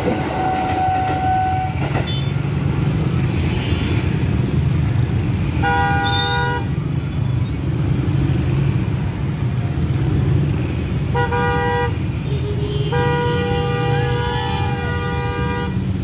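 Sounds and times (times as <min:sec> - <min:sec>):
road traffic: 0:00.0 - 0:16.0
vehicle horn honking: 0:11.2 - 0:15.8.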